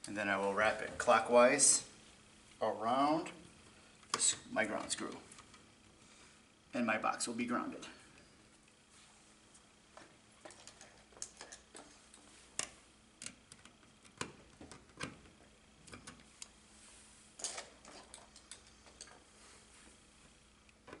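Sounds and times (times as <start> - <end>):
pliers and wire clicking on metal: 10.4 - 15.2.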